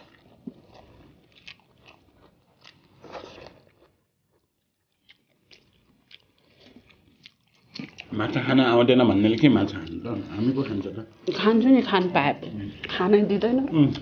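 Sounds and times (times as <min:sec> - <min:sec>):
people chewing: 0:00.0 - 0:14.0.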